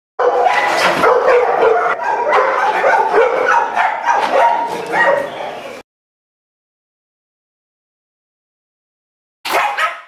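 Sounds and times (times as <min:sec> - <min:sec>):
dog barking and yipping: 0:00.2 - 0:05.7, 0:09.5 - 0:10.0.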